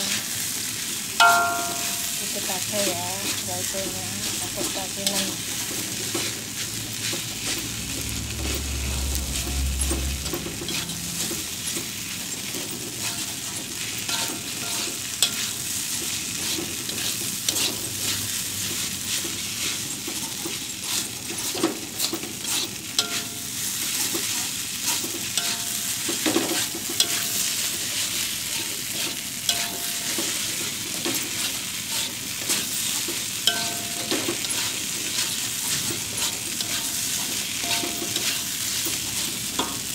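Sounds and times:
rice sizzling in a wok: 0:00.0 - 0:39.9
metal spatula scraping a wok: 0:01.2 - 0:39.9.

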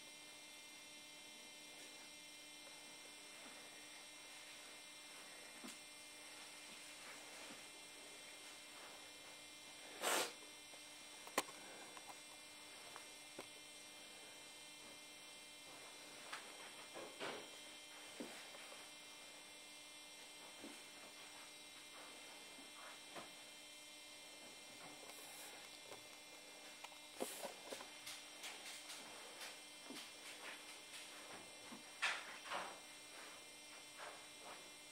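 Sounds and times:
steady electrical hum: 0:00.0 - 0:34.9
faint rustles and ticks: 0:24.3 - 0:34.8.

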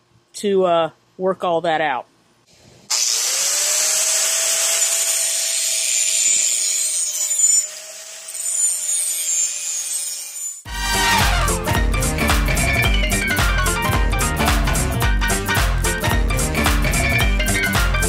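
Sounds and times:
angle grinder motor whine: 0:02.9 - 0:11.5.

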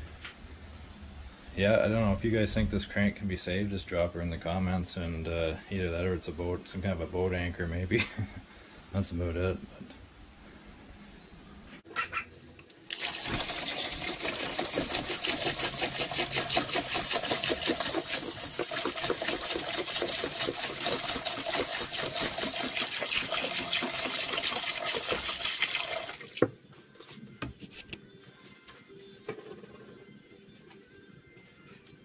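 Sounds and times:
liquid pouring into plastic tub: 0:12.9 - 0:26.5.

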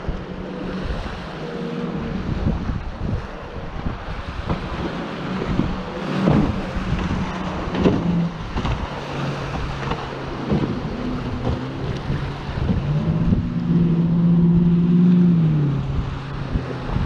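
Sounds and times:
outboard engines humming: 0:00.0 - 0:17.0
wind buffeting microphone: 0:00.0 - 0:17.0
waves breaking on shingle: 0:04.4 - 0:12.1.

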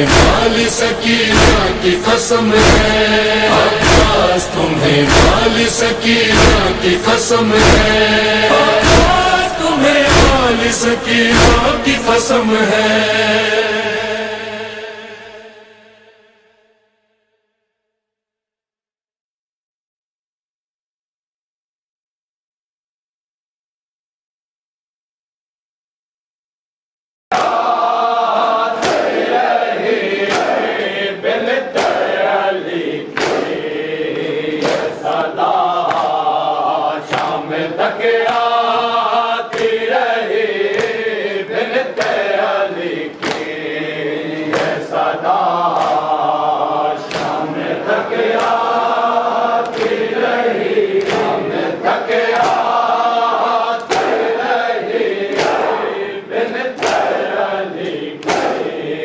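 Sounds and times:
chest-beating slaps: 0:00.0 - 0:12.9, 0:27.3 - 0:28.0, 0:28.7 - 0:29.3, 0:30.2 - 0:31.0, 0:31.7 - 0:32.2, 0:33.1 - 0:36.3, 0:37.0 - 0:37.5, 0:38.2 - 0:38.6, 0:39.5 - 0:39.9, 0:40.6 - 0:41.0, 0:41.9 - 0:42.3, 0:43.1 - 0:45.0, 0:45.7 - 0:46.3, 0:47.0 - 0:48.8, 0:49.6 - 0:50.2, 0:50.9 - 0:53.0, 0:53.8 - 0:54.3, 0:55.3 - 0:55.9, 0:56.8 - 0:58.7
men chanting a lament: 0:00.0 - 0:16.1, 0:27.3 - 0:59.0.

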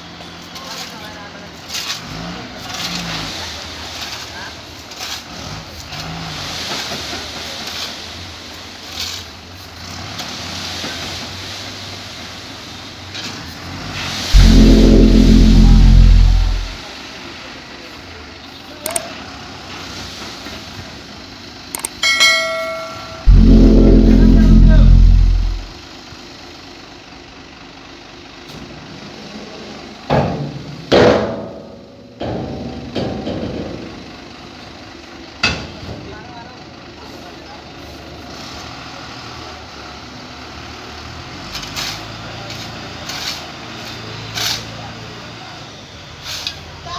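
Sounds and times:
truck engine running: 0:14.3 - 0:16.9, 0:21.2 - 0:25.7
sudden loud bangs: 0:14.4 - 0:16.8, 0:23.2 - 0:25.8.

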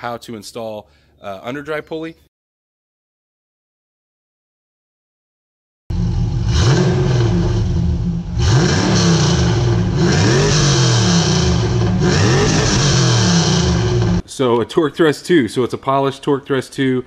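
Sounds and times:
car engine revving: 0:05.9 - 0:14.2.

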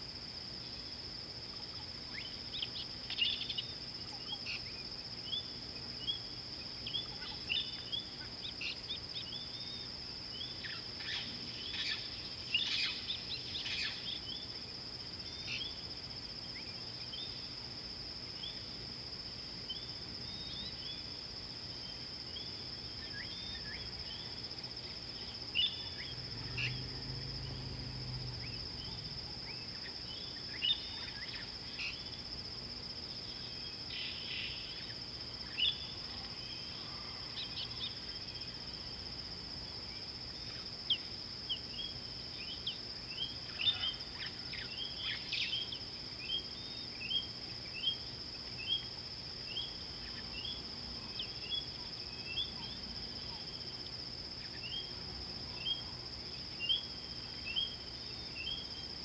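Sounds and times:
high-pitched insect drone: 0:22.5 - 0:32.4.

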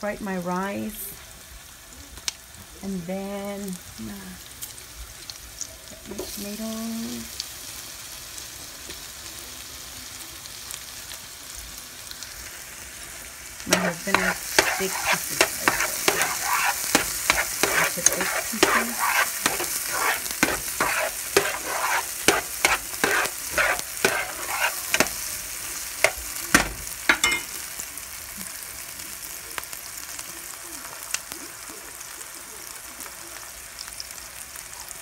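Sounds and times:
vegetables sizzling in oil: 0:00.2 - 0:35.0
utensil stirring and scraping pan: 0:13.7 - 0:27.5.

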